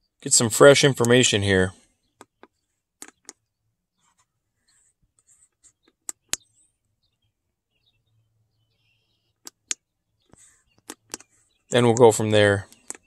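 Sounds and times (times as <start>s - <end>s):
keypad buttons clicking: 2.2s - 3.4s, 10.8s - 11.3s.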